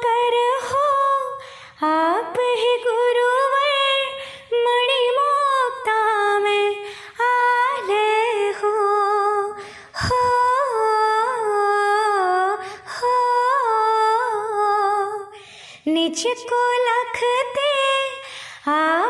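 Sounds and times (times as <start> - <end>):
person humming a devotional tune: 8.4 - 15.4.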